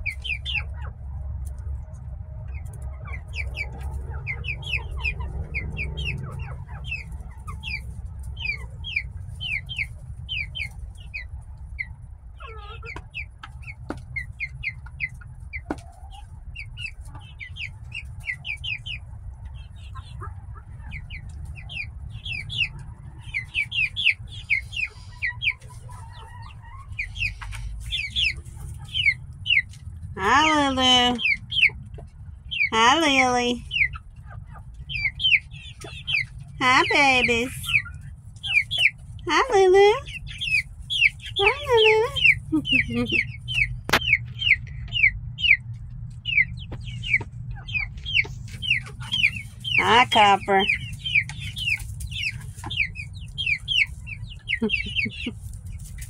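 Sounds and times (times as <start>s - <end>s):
chickens clucking: 0.0s - 56.0s
chicks peeping: 0.0s - 56.0s
low steady hum: 0.0s - 56.0s.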